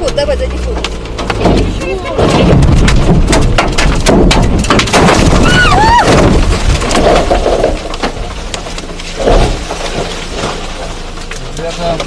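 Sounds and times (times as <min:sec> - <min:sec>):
branches falling on car: 0:00.0 - 0:12.0
trees cracking and crashing: 0:00.0 - 0:12.0
person crying out: 0:05.4 - 0:06.1.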